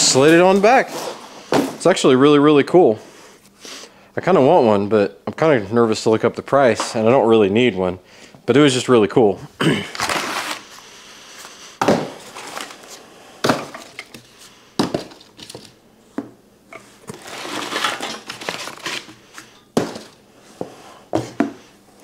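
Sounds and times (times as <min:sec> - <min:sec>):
cardboard rustling and scraping: 0:10.0 - 0:10.7, 0:11.9 - 0:13.0, 0:16.9 - 0:21.6
sharp knocks of cardboard pieces: 0:11.8 - 0:12.2, 0:14.8 - 0:15.2, 0:19.8 - 0:20.2.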